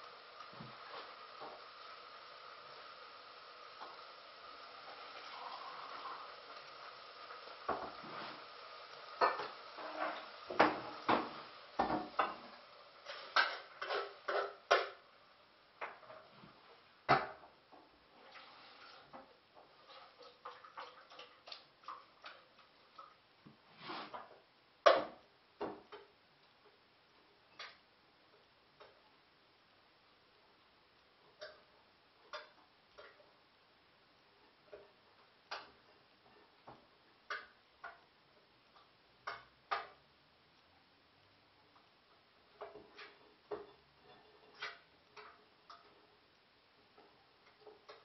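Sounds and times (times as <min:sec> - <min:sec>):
pots and dishes clattering: 0:09.2 - 0:15.0, 0:42.6 - 0:45.9.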